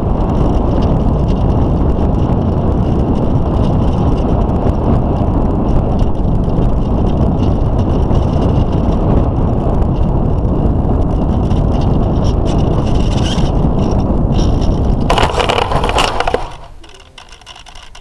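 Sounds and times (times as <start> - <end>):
wind rumble: 0.0 - 18.0
wheels bumping on grass: 11.3 - 18.0
grass scraping rustle: 14.4 - 18.0.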